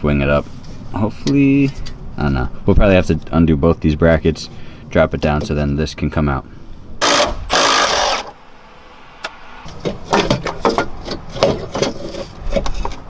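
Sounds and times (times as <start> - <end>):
cordless power tool running: 7.0 - 8.4
metal parts knocking and clanking: 9.7 - 13.0.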